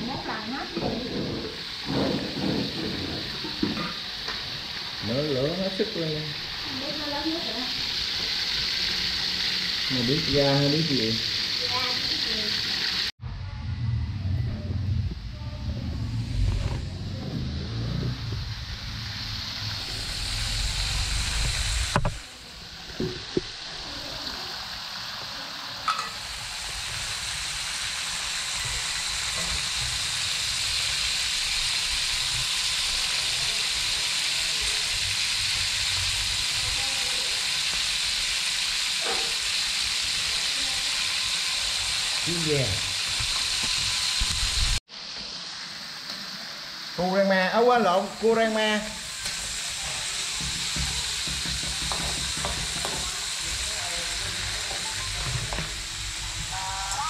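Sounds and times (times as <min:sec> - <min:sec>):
food sizzling in hot oil: 0:00.0 - 0:57.0
low rumble: 0:13.2 - 0:22.3.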